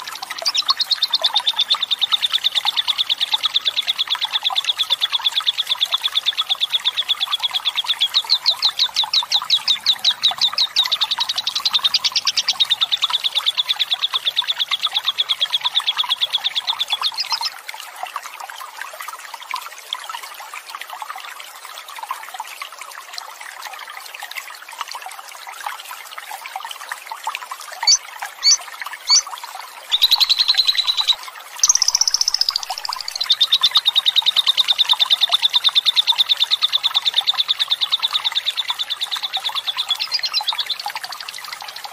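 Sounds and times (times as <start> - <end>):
flowing water murmuring: 0.0 - 41.9
bird twittering and chirps: 0.4 - 3.8, 7.3 - 13.3, 14.4 - 17.5, 27.8 - 29.3, 29.9 - 34.5, 38.8 - 40.8
bird fast trilling chatter: 27.8 - 29.2.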